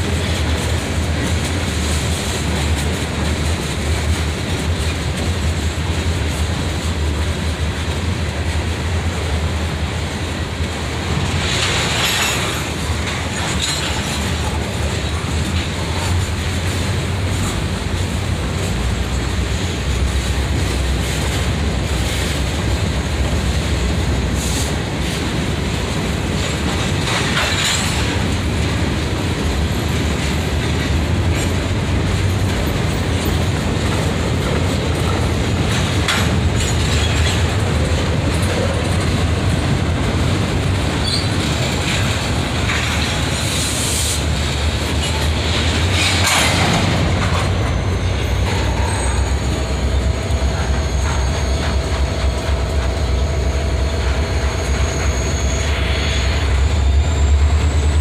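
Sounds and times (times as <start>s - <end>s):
clickety-clack over rail joints: 0.0s - 58.0s
train wheels rumbling on rails: 0.0s - 58.0s
high-pitched wheel squeals: 47.4s - 52.7s, 53.8s - 58.0s.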